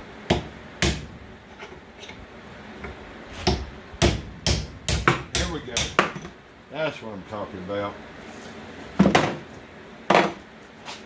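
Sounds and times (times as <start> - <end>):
hammer striking steel punch: 0.3 - 1.1, 3.4 - 6.3.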